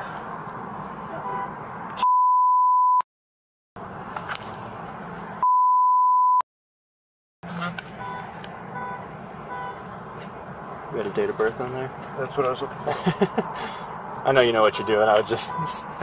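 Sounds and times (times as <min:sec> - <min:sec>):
censor bleeps: 0:02.0 - 0:03.0, 0:05.4 - 0:06.4
short electronic beeps: 0:02.0 - 0:03.0, 0:05.4 - 0:06.4.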